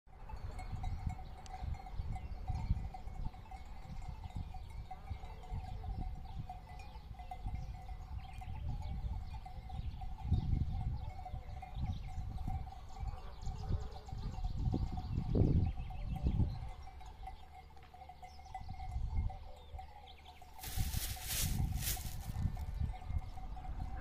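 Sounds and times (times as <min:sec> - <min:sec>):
sheep bells clinking: 0:00.1 - 0:24.0
wind on microphone: 0:00.4 - 0:17.0, 0:20.6 - 0:24.0.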